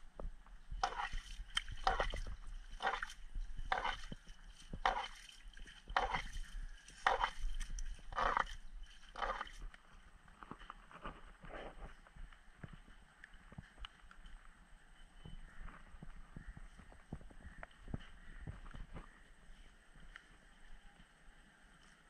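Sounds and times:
fish splashing in water: 0:00.8 - 0:09.7.

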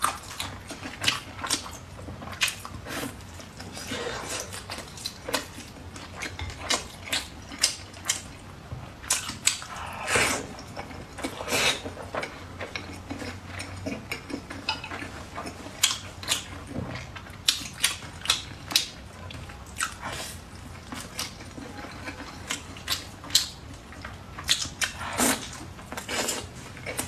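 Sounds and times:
person chewing food: 0:00.0 - 0:27.0.

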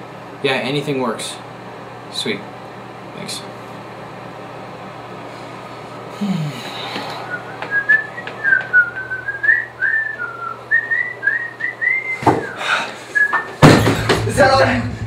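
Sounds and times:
person whistling a tune: 0:07.2 - 0:13.5.

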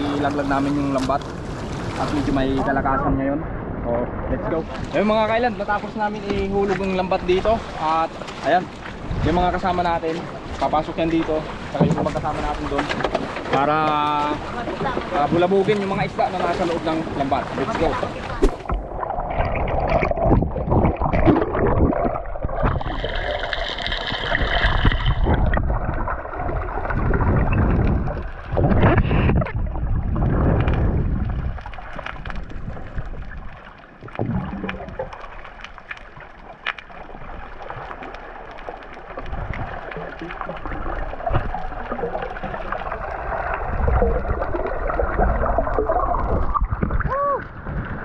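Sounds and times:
water splashing: 0:00.0 - 0:48.0
muffled underwater gurgling: 0:13.9 - 0:35.6, 0:36.3 - 0:48.0.

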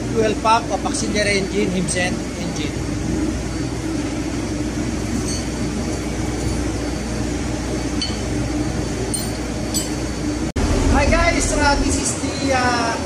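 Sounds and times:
machinery and ventilation hum: 0:00.0 - 0:13.0.

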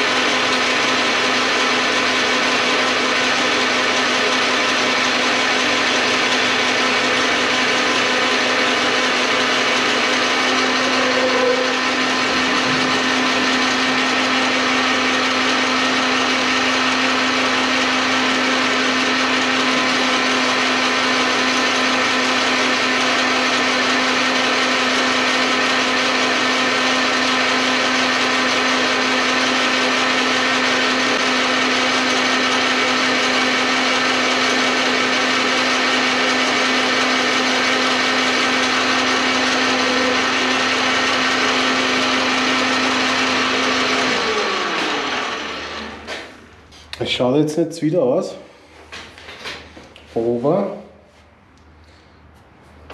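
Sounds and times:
metal lathe running: 0:00.0 - 0:46.4.

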